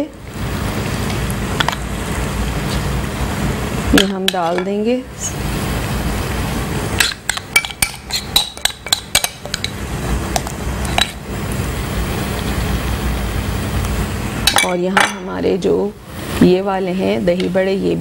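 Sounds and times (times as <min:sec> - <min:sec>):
oil frying hiss: 0:00.0 - 0:18.0
metal spoon clinking on pan rim: 0:07.0 - 0:09.8, 0:14.5 - 0:15.2.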